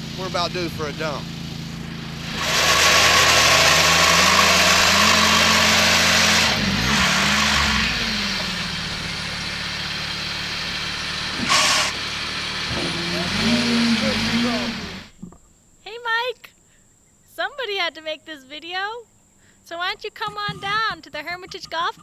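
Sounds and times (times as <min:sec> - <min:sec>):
vehicle engine running under load: 0:00.0 - 0:15.2
sand sliding off dump bed: 0:02.1 - 0:15.1
short burst of noise: 0:11.4 - 0:12.1.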